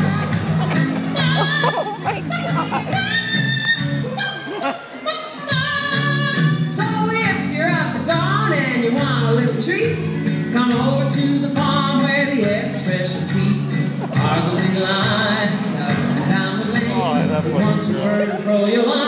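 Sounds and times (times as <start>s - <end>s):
song with singer and band: 5.2s - 19.0s.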